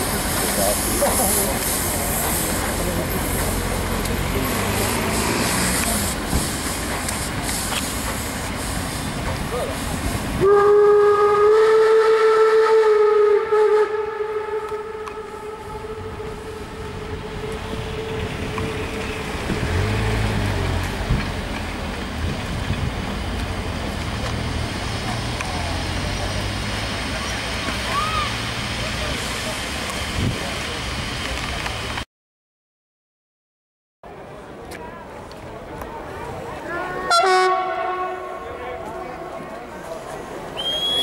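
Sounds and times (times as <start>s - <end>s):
steam hissing: 0.0s - 11.5s
steam locomotive whistle: 10.4s - 18.9s, 36.8s - 38.6s, 40.6s - 41.0s.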